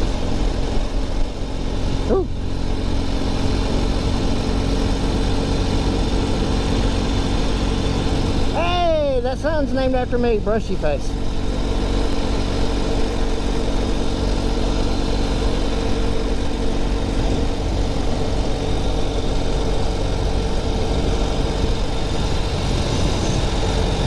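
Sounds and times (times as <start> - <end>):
motorcycle engine running: 0.0 - 24.0
wind on microphone: 11.4 - 24.0.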